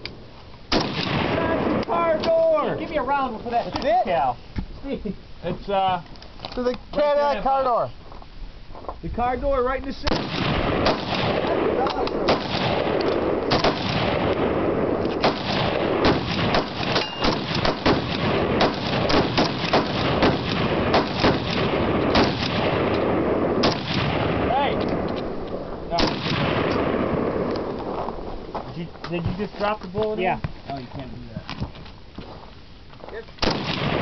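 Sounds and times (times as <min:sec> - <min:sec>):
machine-gun fire: 0:00.7 - 0:01.8, 0:10.1 - 0:25.1, 0:25.9 - 0:27.5, 0:33.4 - 0:34.0.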